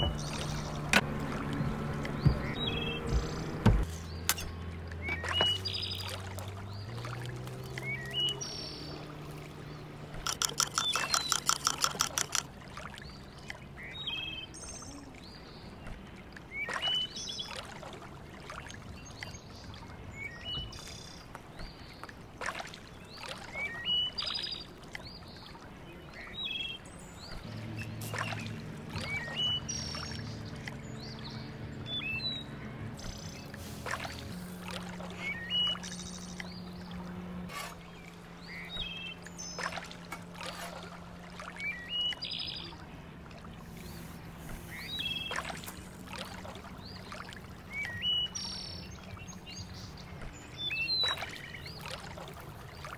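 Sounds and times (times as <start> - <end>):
small birds chirping: 0.0 - 1.0, 2.1 - 15.8, 19.0 - 40.6, 43.6 - 52.9
low steady hum: 24.8 - 52.9.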